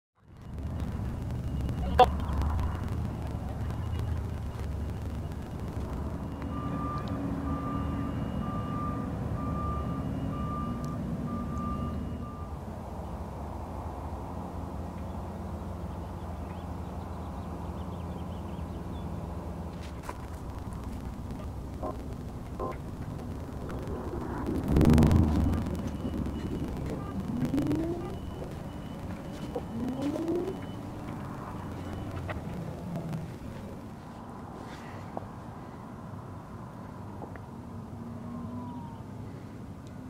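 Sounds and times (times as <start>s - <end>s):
warning alarm beeping: 0.2s - 12.6s, 20.5s - 33.5s
crane engine running: 0.2s - 34.2s.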